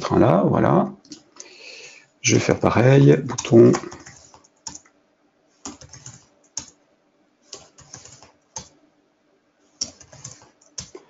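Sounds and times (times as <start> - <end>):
keyboard and mouse clicking: 1.0 - 1.5, 3.3 - 4.9, 5.6 - 6.8, 7.5 - 8.8, 9.8 - 11.0.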